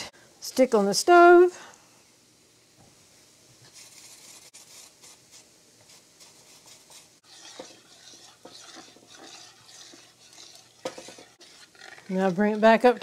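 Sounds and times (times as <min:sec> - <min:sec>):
cloth wiping a stove: 0:03.6 - 0:13.0
metal spoon scraping a saucepan: 0:07.2 - 0:13.0.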